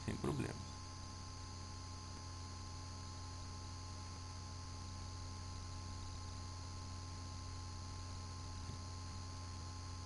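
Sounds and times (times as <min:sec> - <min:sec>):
faint high steady tone: 0:00.0 - 0:10.0
low electrical hum: 0:00.0 - 0:10.0.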